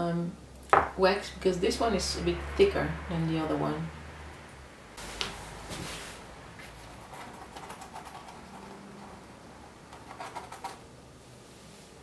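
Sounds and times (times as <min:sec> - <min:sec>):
wooden skewer scratching wax: 0:06.6 - 0:10.8.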